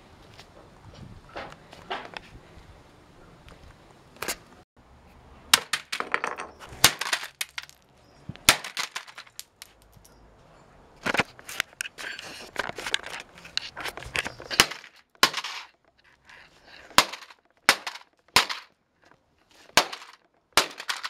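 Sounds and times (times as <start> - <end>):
plastic keyboards smashed on concrete: 5.5 - 7.8, 8.4 - 9.8, 14.5 - 15.7, 16.9 - 18.8, 19.7 - 21.0.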